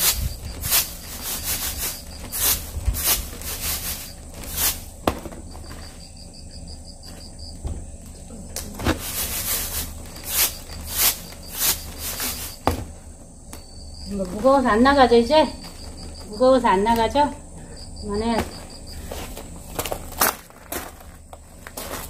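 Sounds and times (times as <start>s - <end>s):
seeds rattling in winnowing basket: 0.0s - 5.0s, 8.8s - 12.7s.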